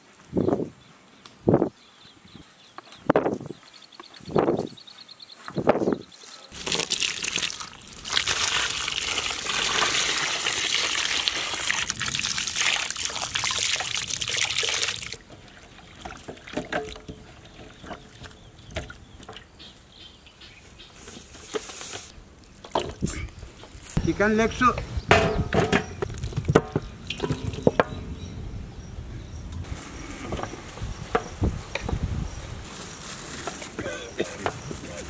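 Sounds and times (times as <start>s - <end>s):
water pouring over chicken: 6.6s - 15.2s.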